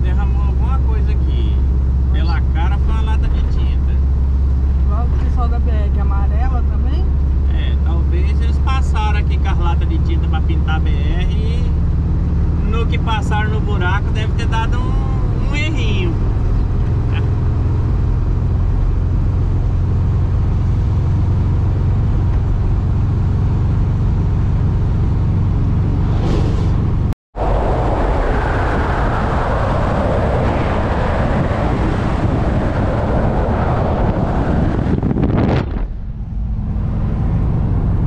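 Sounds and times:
van engine and road rumble: 0.0s - 38.0s
truck passing: 0.7s - 38.0s
wind rushing over microphone: 14.3s - 38.0s.

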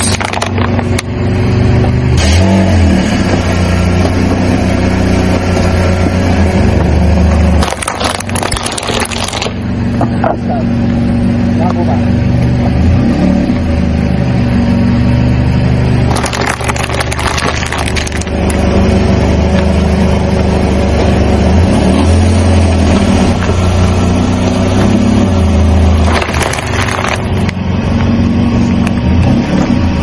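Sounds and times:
plastic cups crunching: 0.0s - 1.1s, 7.5s - 9.6s, 16.1s - 18.6s, 26.0s - 27.3s
car engine running: 0.0s - 30.0s.

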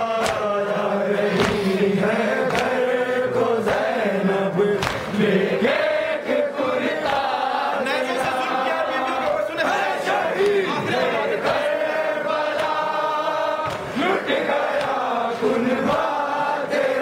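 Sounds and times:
men chanting a lament: 0.0s - 17.0s
hands slapping chests: 0.2s - 0.6s, 1.3s - 2.9s, 3.6s - 4.0s, 4.7s - 5.2s, 6.9s - 7.4s, 10.4s - 10.7s, 12.5s - 13.0s, 13.6s - 16.2s.

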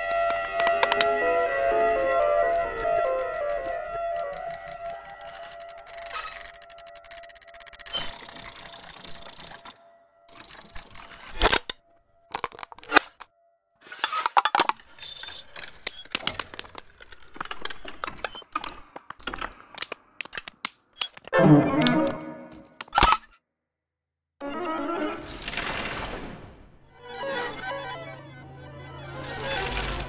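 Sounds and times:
sharp clicks and crackles: 0.3s - 13.3s, 14.5s - 21.3s.

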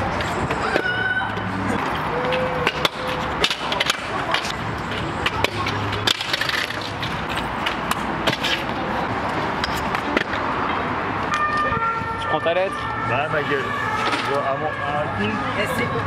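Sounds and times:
scooter wheels rolling on concrete: 0.0s - 11.7s.

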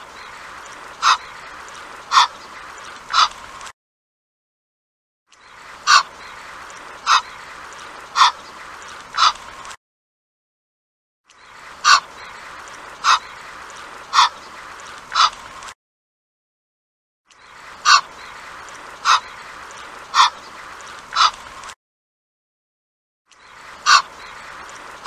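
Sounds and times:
goose calling: 0.1s - 3.4s, 5.8s - 8.5s, 9.1s - 9.4s, 11.8s - 14.5s, 15.1s - 15.4s, 17.8s - 19.5s, 20.1s - 20.5s, 21.1s - 21.4s, 23.8s - 24.5s.

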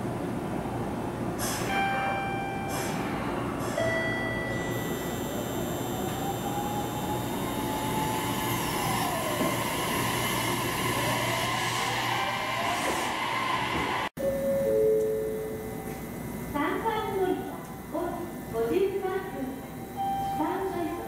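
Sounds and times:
traction motors whining: 4.6s - 14.1s
signal tones: 19.7s - 21.0s.

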